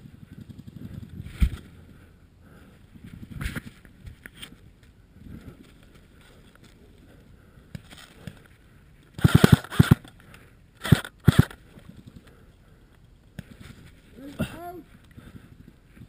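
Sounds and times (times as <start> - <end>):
airsoft rifle shots: 9.2 - 10.1, 10.8 - 11.6.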